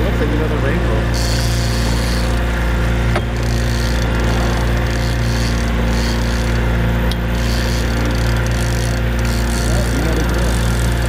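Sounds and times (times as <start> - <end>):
outboard motor running: 0.0 - 11.0.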